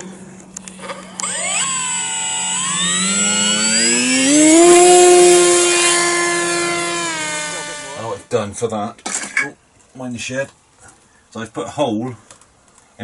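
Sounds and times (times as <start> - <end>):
electric motor and propeller whine: 0.5 - 8.3.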